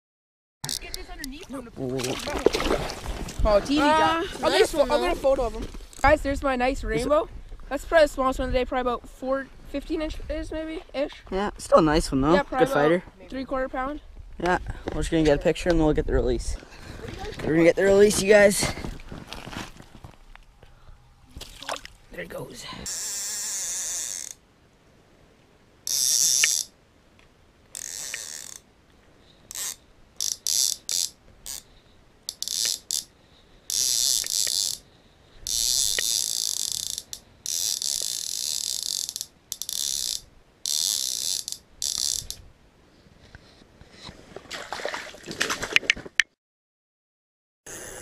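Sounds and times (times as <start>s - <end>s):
fishing reel whirring: 22.9s - 24.4s, 25.9s - 26.7s, 27.8s - 28.6s, 29.5s - 31.7s, 32.3s - 33.1s, 33.7s - 42.4s.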